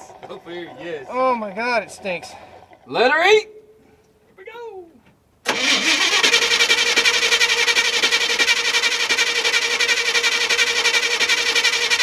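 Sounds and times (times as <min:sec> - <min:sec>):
engine cranking on starter: 0:05.4 - 0:12.0.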